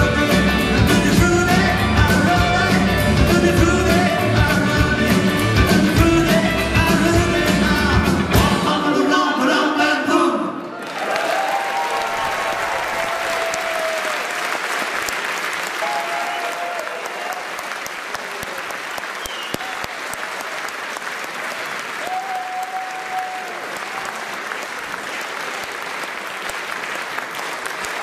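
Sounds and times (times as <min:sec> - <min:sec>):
cheering shouts: 0:10.7 - 0:14.7, 0:15.7 - 0:20.4, 0:22.0 - 0:24.4
audience applauding: 0:10.8 - 0:28.0.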